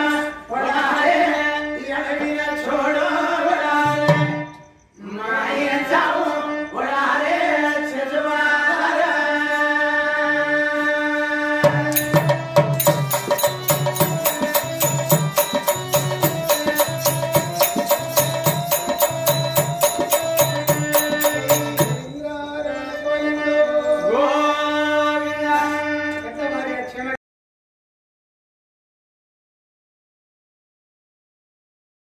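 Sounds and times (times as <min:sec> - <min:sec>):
person singing: 0:00.0 - 0:26.8
drum beat: 0:11.7 - 0:22.2
small hand cymbals: 0:11.9 - 0:22.4.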